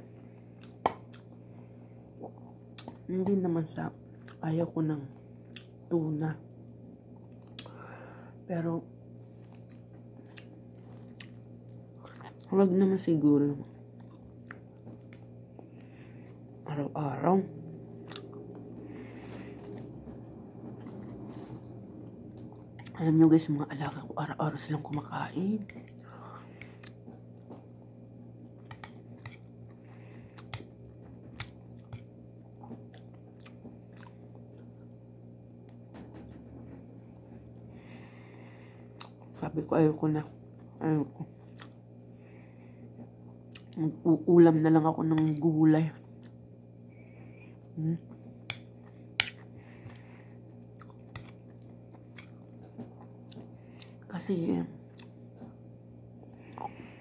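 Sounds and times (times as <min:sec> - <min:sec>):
steady low hum: 0:00.0 - 0:57.0
person chewing: 0:00.4 - 0:01.4, 0:09.4 - 0:12.5, 0:14.0 - 0:16.6, 0:17.6 - 0:20.0, 0:22.3 - 0:23.0, 0:25.7 - 0:27.8, 0:28.6 - 0:35.0, 0:38.8 - 0:39.3, 0:41.3 - 0:41.8, 0:43.4 - 0:43.8, 0:48.1 - 0:54.0, 0:54.9 - 0:55.6.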